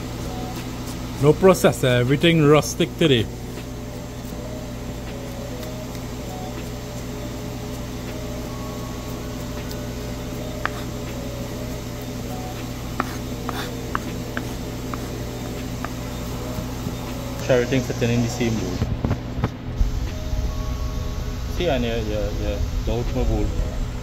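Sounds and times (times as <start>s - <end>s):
steady low hum: 0.0s - 24.0s
knife tapping wooden board: 12.9s - 17.0s.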